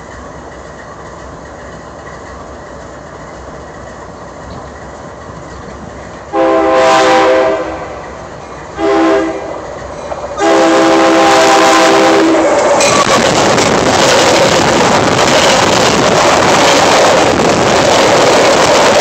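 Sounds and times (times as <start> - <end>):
train rumbling: 0.0 - 19.0
train horn blasts: 6.3 - 8.0, 8.8 - 9.7, 10.4 - 13.2.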